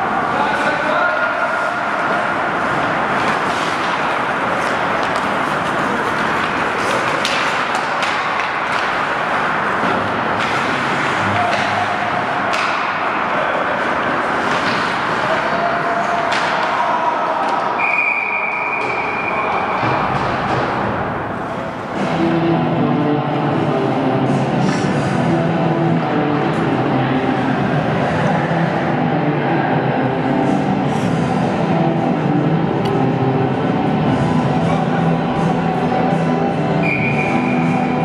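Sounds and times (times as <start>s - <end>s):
skate and arena noise: 0.0s - 38.0s
hockey sticks and puck knocking: 3.1s - 17.8s
high whistle tone: 17.8s - 19.7s, 36.8s - 37.8s.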